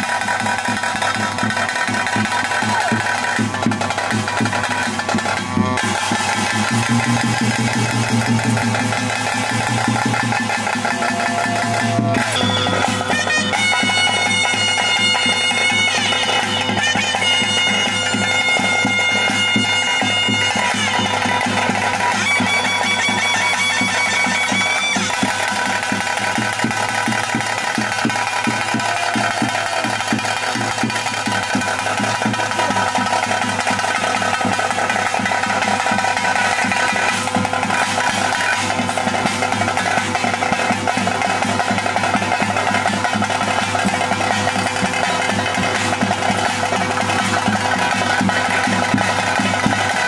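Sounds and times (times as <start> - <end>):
drums beating rhythm: 0.0 - 50.0
reed instrument long notes: 10.9 - 21.4.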